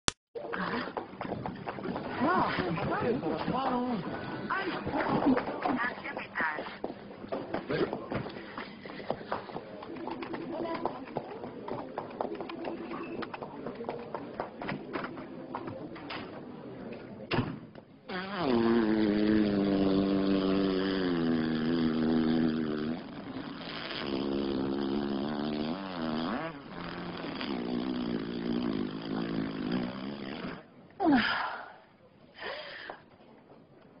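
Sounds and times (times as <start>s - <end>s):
long wavering fart: 18.1s - 30.7s
short fart sounds: 18.1s - 30.7s.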